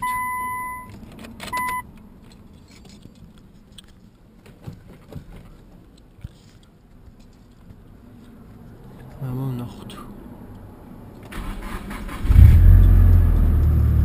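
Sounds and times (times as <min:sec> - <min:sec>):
electronic beeps: 0:01.5 - 0:01.8.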